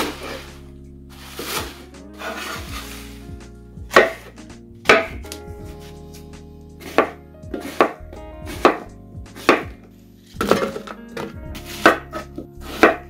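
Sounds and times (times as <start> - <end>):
knife chopping on cutting board: 3.9 - 4.3, 6.8 - 8.8, 9.4 - 9.7, 10.4 - 13.0.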